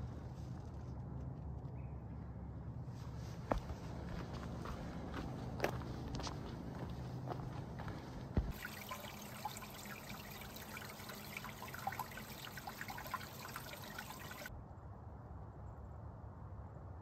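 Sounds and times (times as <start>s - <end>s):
water trickling over rocks: 8.5s - 14.5s.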